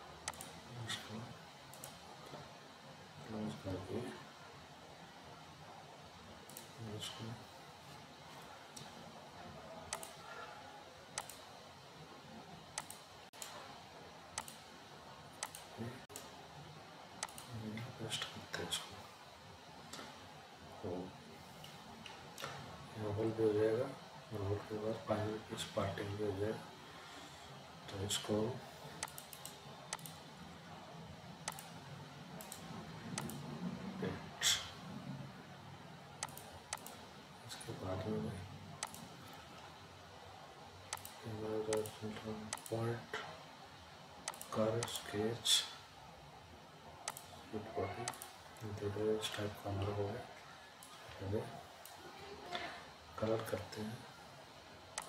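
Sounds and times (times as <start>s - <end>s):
faint low hum: 0.0s - 55.0s
faint steady hiss: 0.0s - 55.0s
computer mouse clicking: 0.2s - 0.6s, 1.7s - 2.0s, 6.5s - 6.7s, 9.9s - 10.2s, 11.1s - 11.5s, 12.7s - 13.6s, 14.3s - 14.7s, 15.4s - 16.3s, 17.2s - 17.6s, 29.0s - 30.2s, 31.4s - 31.8s, 32.4s - 33.5s, 36.2s - 37.0s, 38.8s - 39.2s, 40.9s - 42.7s, 44.2s - 45.0s, 47.0s - 47.4s, 48.0s - 48.4s.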